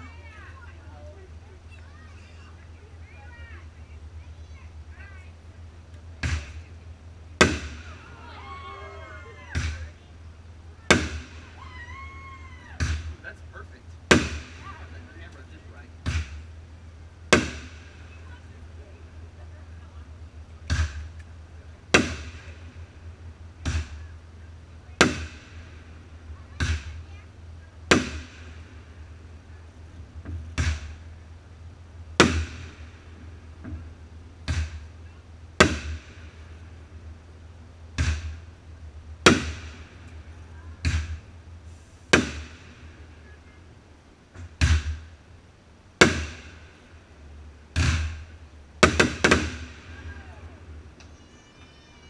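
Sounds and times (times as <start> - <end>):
fireworks bangs with echo: 14.1 - 15.4, 17.3 - 18.4, 27.9 - 29.2, 39.2 - 41.3, 42.1 - 43.4, 47.7 - 50.8.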